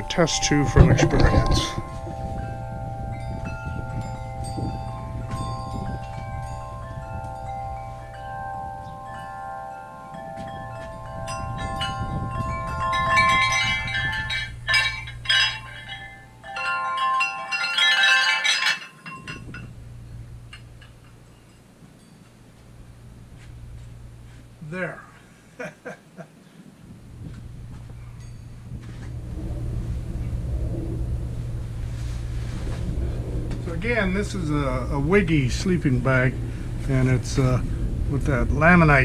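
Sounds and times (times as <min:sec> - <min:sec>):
chime tubes clanking and rattling: 0:00.0 - 0:22.4
wind chime ringing: 0:00.0 - 0:23.5, 0:28.0 - 0:29.9.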